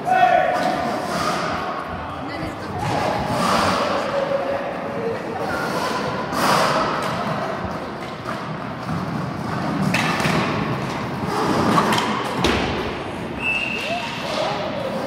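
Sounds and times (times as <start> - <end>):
hockey sticks and ball knocking: 6.5 - 13.0.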